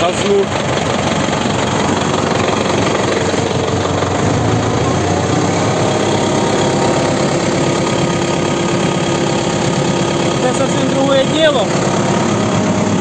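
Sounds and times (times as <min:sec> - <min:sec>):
diesel engine running: 0:00.0 - 0:13.0.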